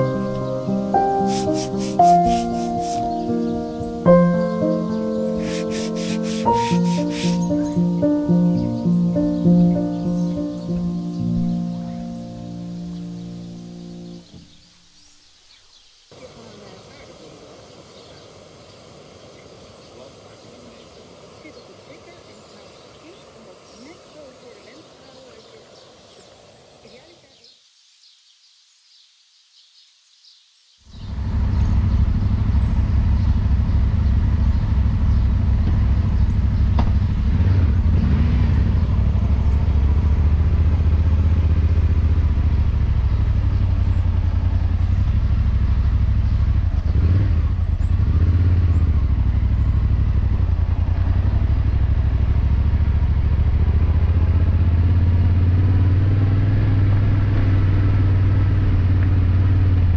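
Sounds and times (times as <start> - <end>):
motorcycle engine running: 31.0 - 59.9.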